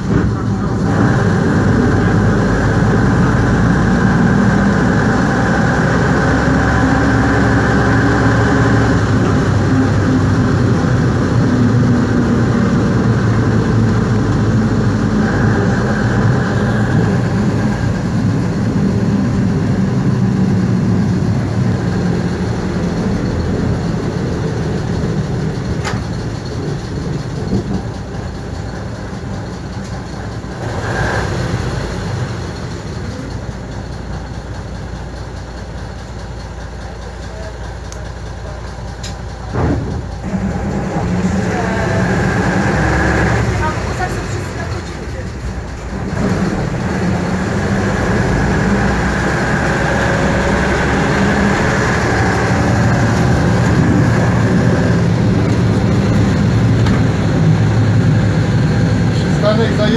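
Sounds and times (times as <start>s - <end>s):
bus diesel engine running: 0.0s - 59.9s.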